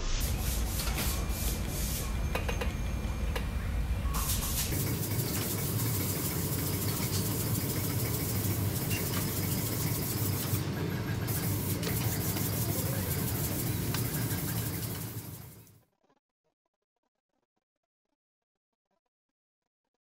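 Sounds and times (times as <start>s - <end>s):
sewing machine running: 4.6s - 15.8s.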